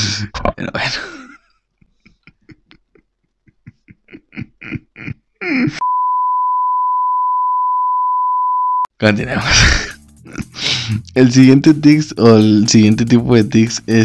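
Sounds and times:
man's stifled laughter: 0.9 - 5.8
steady high test tone beep: 5.8 - 8.9.

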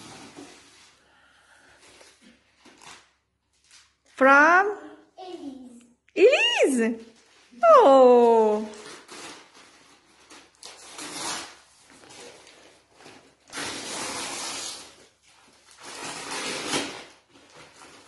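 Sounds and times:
wrapping paper rustling: 7.0 - 18.0.

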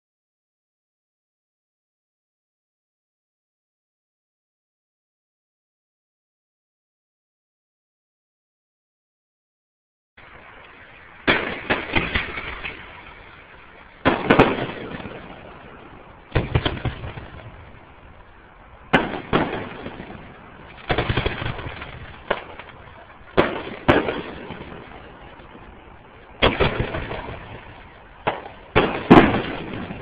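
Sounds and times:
fireworks bursting with bangs: 10.2 - 30.0.

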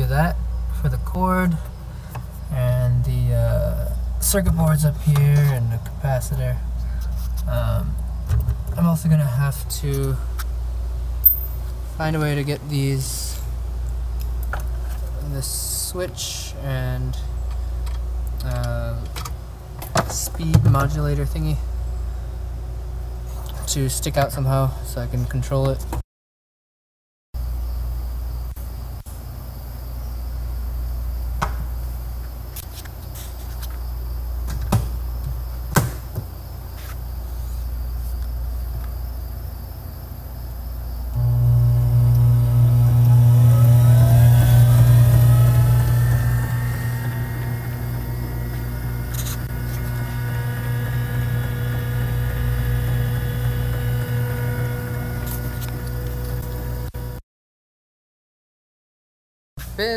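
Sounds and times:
electric motor hum and whine: 27.4 - 57.2.

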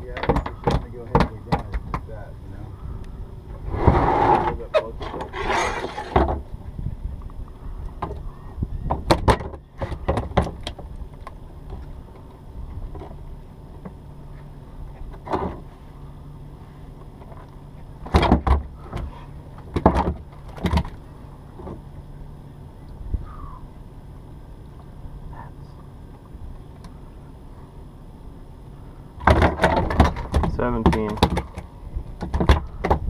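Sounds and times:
steady low hum: 0.0 - 33.0
knocks and thumps on boat: 0.1 - 2.1, 3.8 - 6.5, 8.0 - 10.9, 17.2 - 21.0, 29.2 - 33.0.

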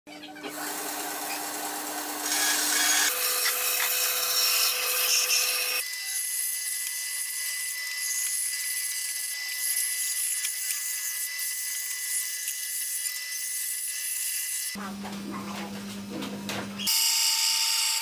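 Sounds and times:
bandsaw cutting wood: 0.5 - 14.8.

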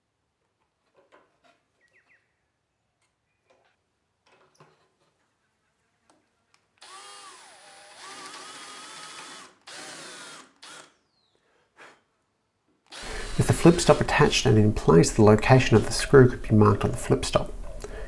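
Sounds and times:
power drill boring into wood: 6.8 - 11.0, 12.9 - 14.5.

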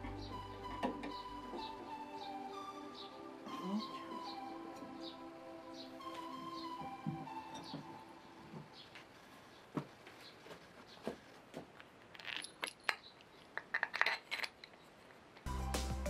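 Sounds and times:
music: 0.0 - 8.7, 15.5 - 16.0.

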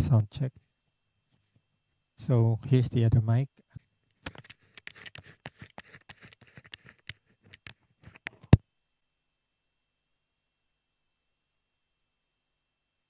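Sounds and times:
microphone handling clicks and rustles: 3.8 - 8.6.

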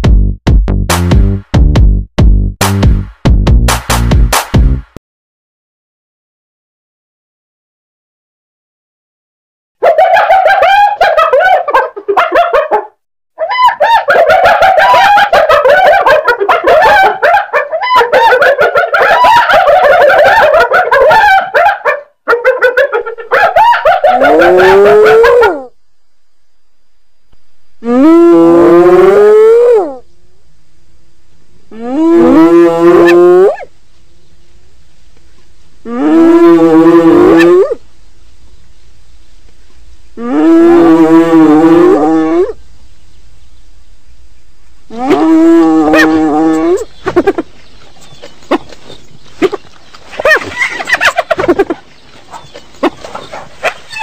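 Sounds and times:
hyenas giggling: 9.8 - 21.5, 22.3 - 25.6, 44.9 - 54.0.

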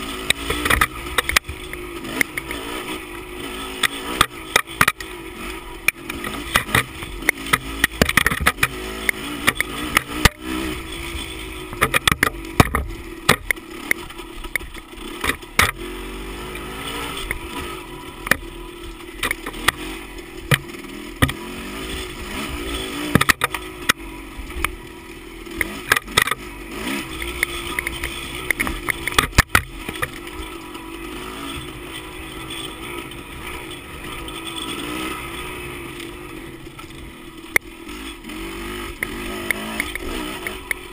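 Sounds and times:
bike knocking and rattling: 0.0 - 40.9
dirt bike engine: 0.0 - 40.9.

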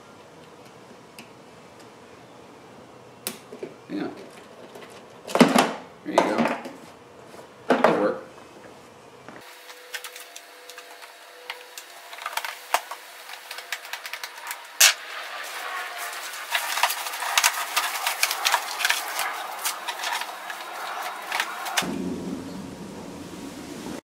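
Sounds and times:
sharp plastic snap: 3.2 - 3.5
fabric cover rustling: 15.4 - 21.8.

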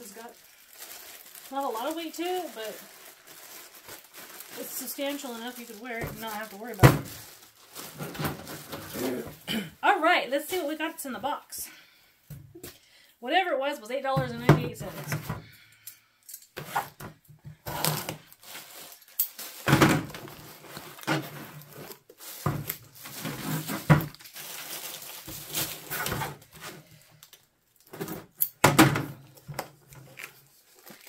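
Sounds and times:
cardboard and plastic rustling: 0.0 - 9.4, 16.6 - 31.0.

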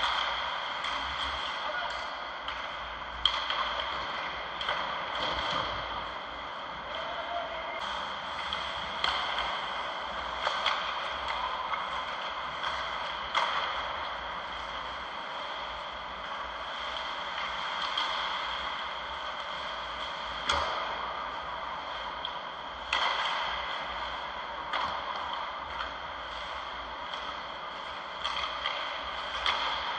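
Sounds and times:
hockey sticks and puck knocking: 0.0 - 6.3, 7.8 - 29.9.

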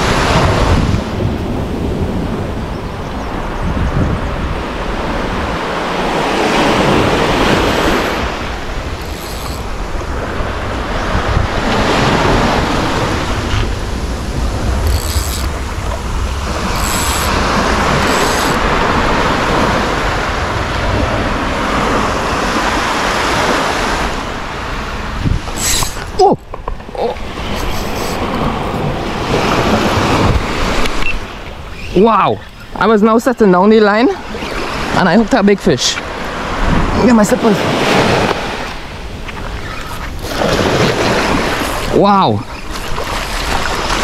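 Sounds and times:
surf waves on sandy beach: 0.0 - 44.0
wind rumbling on microphone: 0.0 - 44.0.

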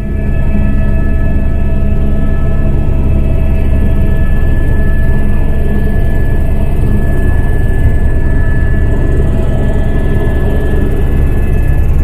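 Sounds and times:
helicopter engine and rotor rumble: 0.0 - 12.0
high whine: 0.0 - 12.0.

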